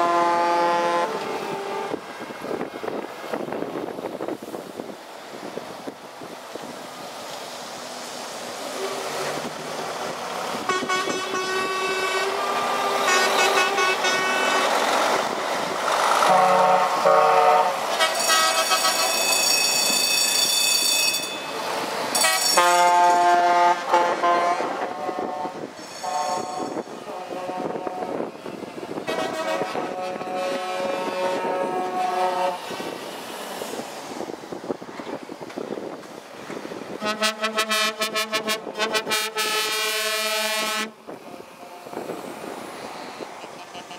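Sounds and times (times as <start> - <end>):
high-pitched horn blasts: 0.0 - 2.0, 10.6 - 14.8, 16.2 - 21.6, 22.2 - 28.2, 29.1 - 32.7, 37.0 - 42.0
truck engines running: 0.0 - 43.9.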